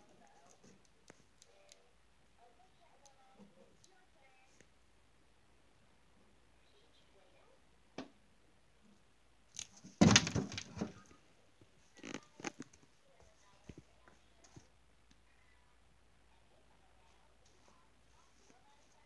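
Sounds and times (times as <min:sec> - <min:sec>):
rustling and knocking: 0:09.7 - 0:11.2.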